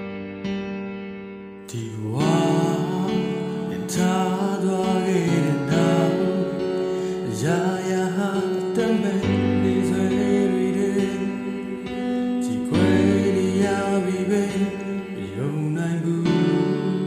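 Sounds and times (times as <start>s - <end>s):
pop backing track: 0.0s - 17.0s
man singing: 1.7s - 17.0s.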